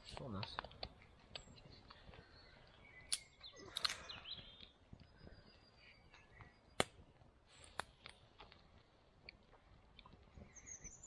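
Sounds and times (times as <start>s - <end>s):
wood campfire crackling: 0.0s - 10.9s
small bird chirps: 1.4s - 7.0s, 10.2s - 11.0s
sharp crack: 6.8s - 7.0s.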